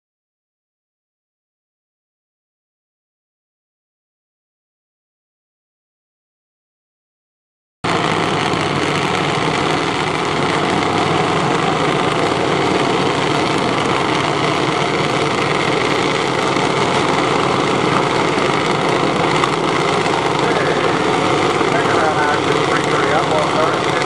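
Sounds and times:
small engines idling: 7.9s - 24.0s.

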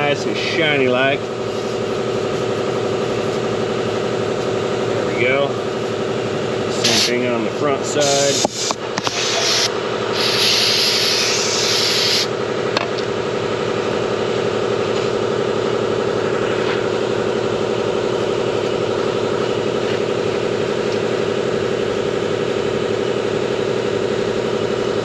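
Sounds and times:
pulsing machine sound: 0.0s - 12.7s
aerosol spray hissing: 6.8s - 7.1s, 8.0s - 12.3s.

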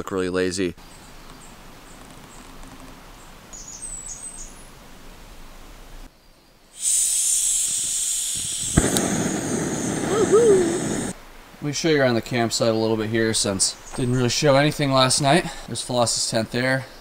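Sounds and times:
bird chirps: 3.5s - 4.7s
gas burner flame rushing: 6.8s - 11.2s
gas hissing from valve: 6.8s - 11.2s
lighter click: 7.6s - 9.8s.

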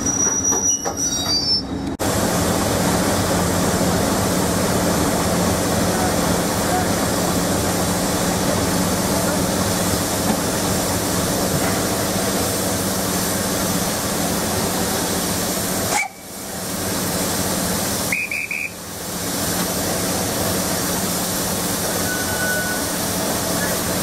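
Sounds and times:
diesel engine running: 2.0s - 24.0s
loud hiss: 2.0s - 24.0s
staff whistle: 18.1s - 18.8s, 22.0s - 22.9s.

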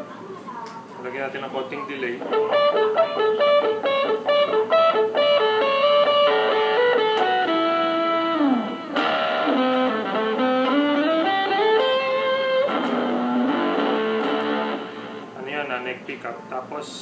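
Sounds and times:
fuzz electric guitar lead: 2.2s - 15.4s.

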